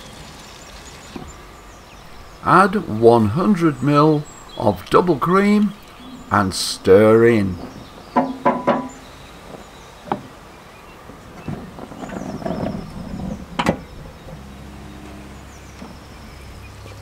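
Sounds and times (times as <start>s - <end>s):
low steady hum: 0.0s - 17.0s
knock: 8.2s - 9.0s
rustling and scraping: 11.0s - 16.2s.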